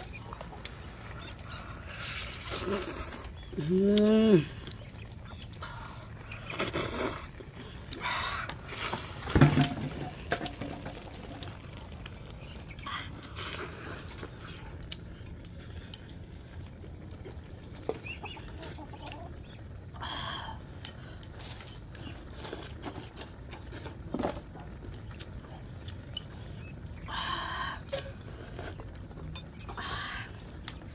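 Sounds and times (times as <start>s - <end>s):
slurping: 0.0s - 9.4s, 11.2s - 19.8s, 27.8s - 30.9s.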